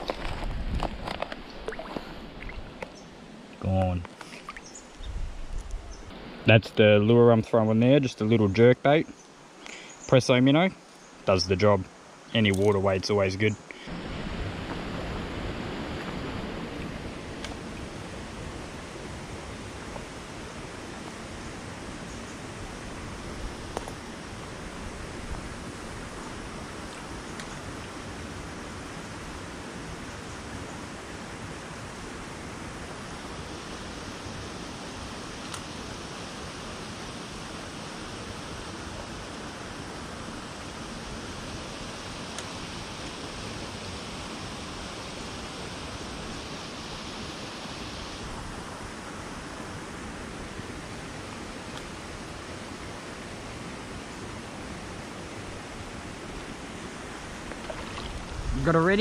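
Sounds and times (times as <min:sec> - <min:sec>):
high hiss: 0:03.0 - 0:59.0
creek rushing over rocks: 0:12.4 - 0:29.9, 0:31.0 - 0:59.0.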